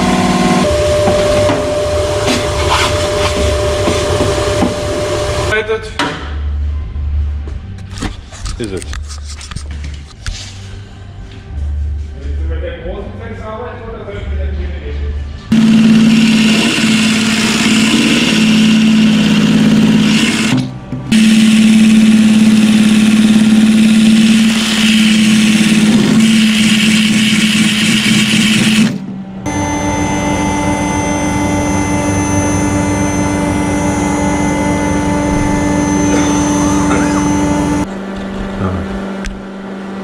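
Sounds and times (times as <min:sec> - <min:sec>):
die grinder with wire wheel: 0:15.5 - 0:37.9.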